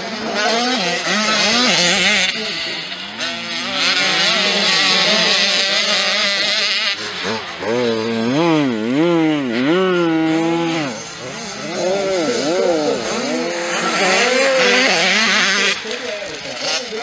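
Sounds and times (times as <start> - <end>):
motocross bike engines revving: 0.0 - 17.0.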